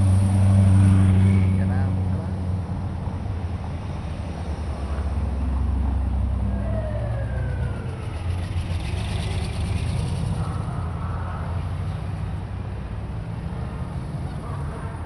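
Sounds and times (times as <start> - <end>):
cars driving slowly past: 0.0 - 15.0.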